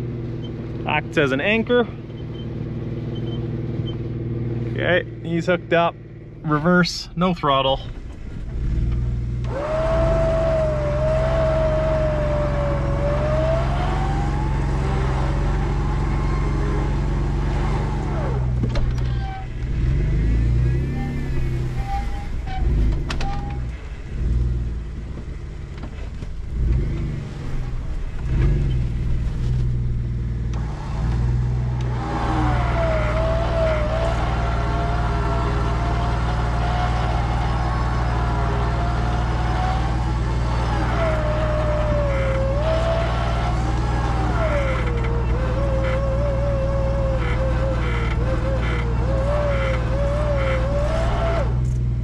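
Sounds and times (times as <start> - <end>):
electric winch whining: 9.4 - 18.4, 30.6 - 51.7
engine idling: 27.7 - 52.0.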